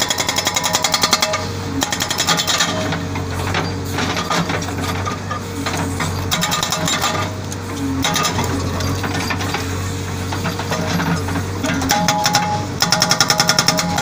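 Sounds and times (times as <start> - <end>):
diesel engine humming: 0.0 - 14.0
hydraulic breaker hammering rock: 0.0 - 14.0.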